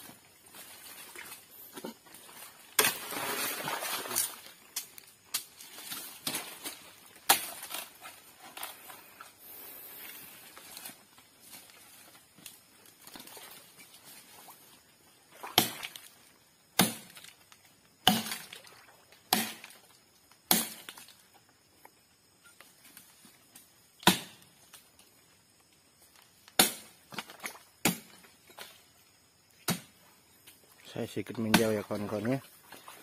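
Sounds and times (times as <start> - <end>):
blade chopping into palm trunk: 15.6 - 16.0, 16.8 - 17.2, 18.0 - 18.5, 19.3 - 19.8, 20.5 - 20.9, 24.0 - 24.4, 26.6 - 26.9.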